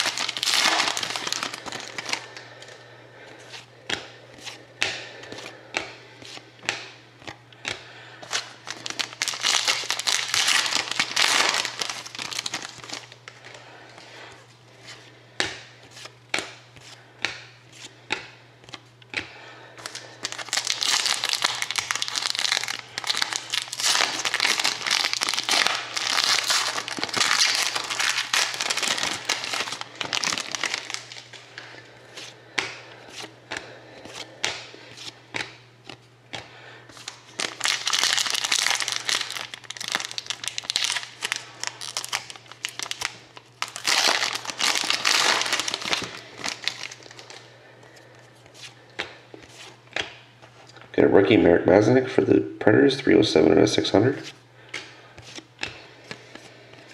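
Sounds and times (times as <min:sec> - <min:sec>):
foil wrapper crinkling and tearing: 0:00.0 - 0:02.4, 0:08.3 - 0:13.4, 0:19.8 - 0:31.4, 0:37.0 - 0:47.5.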